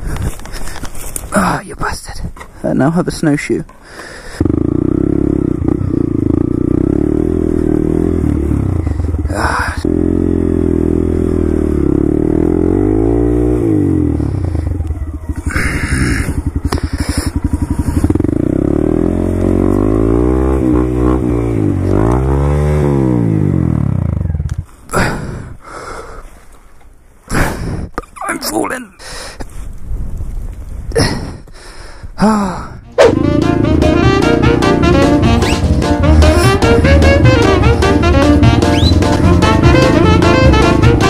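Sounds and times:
motorcycle engine revving: 4.2s - 25.1s, 32.9s - 41.0s.

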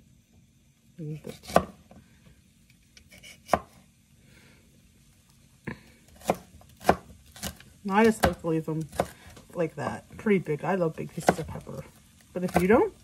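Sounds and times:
knife chopping on cutting board: 1.2s - 1.9s, 3.0s - 3.8s, 6.2s - 9.4s, 11.2s - 11.6s, 12.4s - 12.8s.

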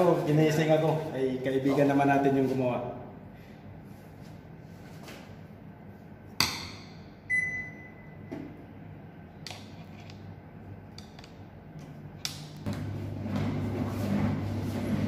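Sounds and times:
electronic beep: 7.3s - 8.2s
washing machine hum: 10.3s - 15.0s.

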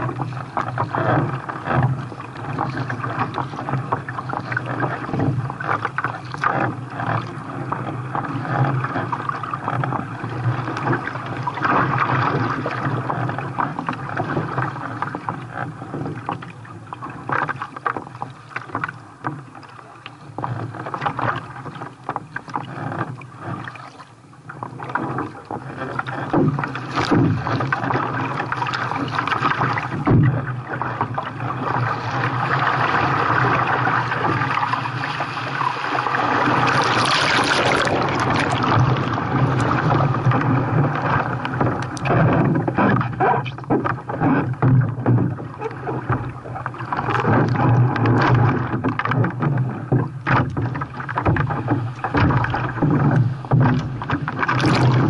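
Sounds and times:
water splashing around a kayak: 0.0s - 55.0s.

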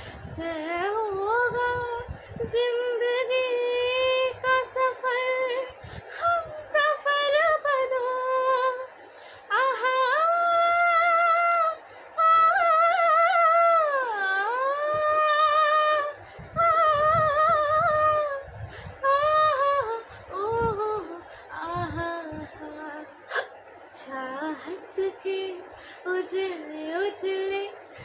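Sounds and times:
woman singing unaccompanied: 0.0s - 28.0s.

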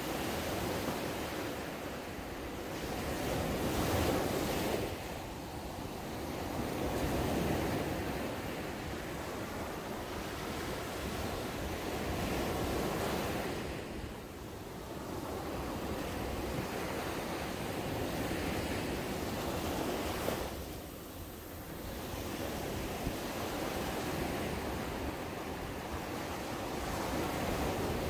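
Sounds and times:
small waves breaking on sand: 0.0s - 28.0s.

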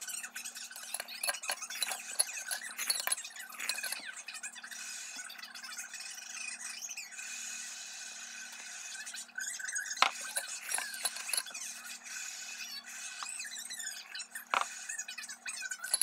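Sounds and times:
utensil clinking glass bowl: 0.7s - 4.1s, 10.0s - 11.6s, 15.8s - 16.0s.

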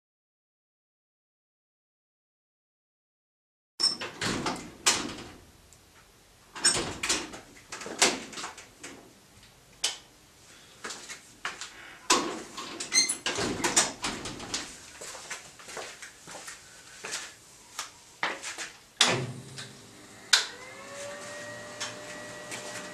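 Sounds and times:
door squeak: 3.8s - 4.2s, 12.9s - 13.8s
door knocks and clunks: 13.2s - 14.5s.

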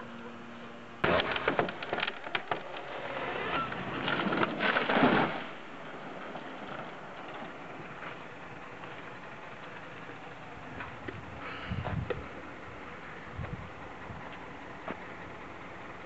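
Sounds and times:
tree crashing into ground: 1.0s - 8.0s
tree cracking: 1.0s - 9.2s.

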